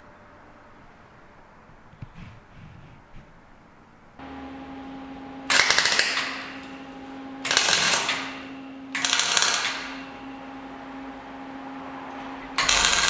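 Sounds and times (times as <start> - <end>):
electrical hum: 0.0 - 13.0
power tool crackling rattle: 5.5 - 10.1, 12.6 - 13.0.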